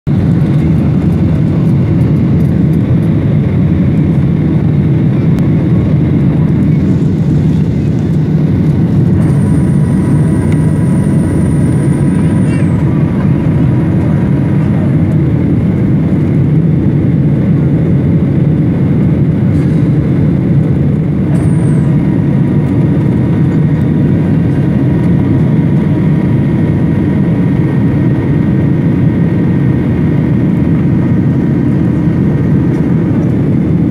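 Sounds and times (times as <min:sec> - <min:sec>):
jet airliner cabin noise: 0:00.1 - 0:33.9.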